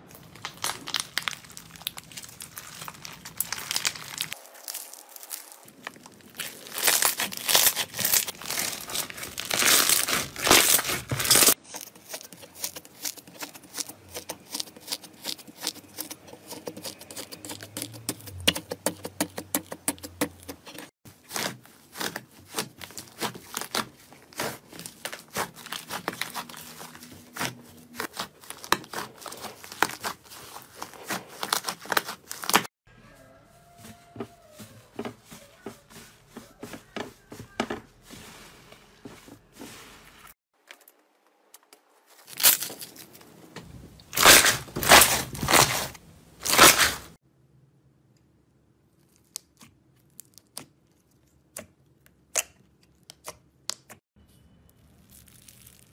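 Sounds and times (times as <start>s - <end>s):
slime crackling and popping: 0.1s - 14.6s, 54.8s - 55.9s.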